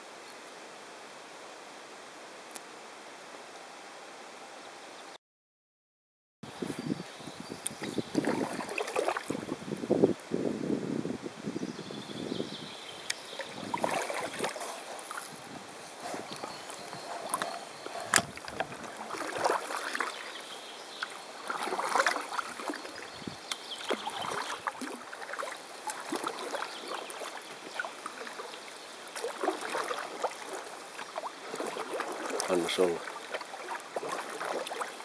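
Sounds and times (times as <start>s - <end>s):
paddle splashing in water: 7.6s - 9.6s, 13.0s - 35.0s
water gurgling along boat: 7.6s - 10.0s, 11.9s - 35.0s.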